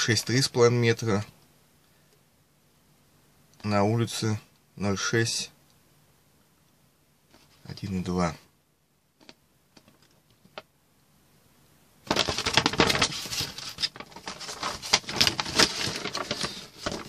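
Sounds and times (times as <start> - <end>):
paper pages rustling: 12.1 - 17.0.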